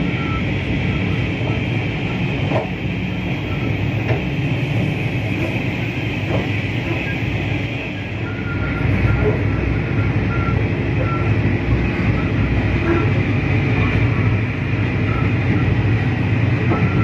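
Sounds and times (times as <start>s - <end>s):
diesel locomotive engine drone: 0.0s - 17.0s
wheel-on-rail noise: 0.0s - 17.0s.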